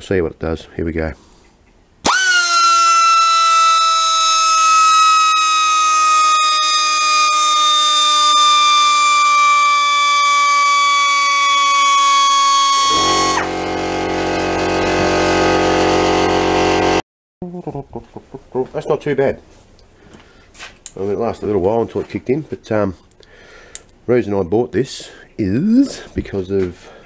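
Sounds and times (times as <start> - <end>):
air grinder high whine: 2.0 - 17.0
air compressor motor drone: 11.9 - 17.0.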